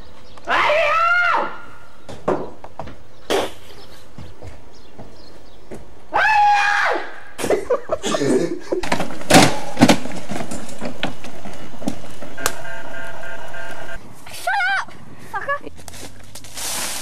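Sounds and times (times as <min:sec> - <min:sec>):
scuffling: 0:08.7 - 0:14.5, 0:15.4 - 0:17.0
sharp clattering impacts: 0:08.8 - 0:14.0.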